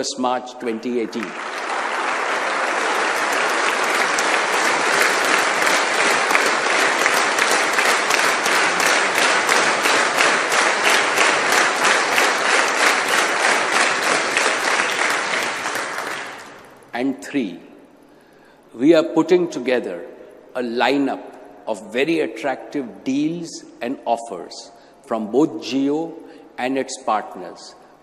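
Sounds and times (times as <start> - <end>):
audience applauding: 1.0 - 16.8.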